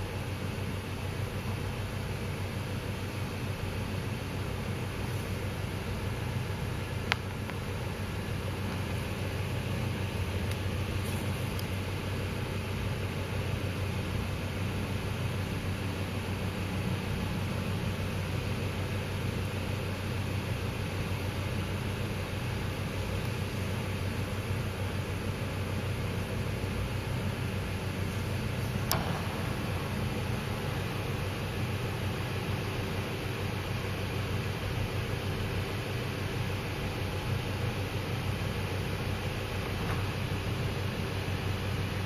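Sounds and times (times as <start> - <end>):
constant hiss: 0.0 - 42.0
steady low hum: 0.0 - 42.0
sharp click: 28.6 - 30.3.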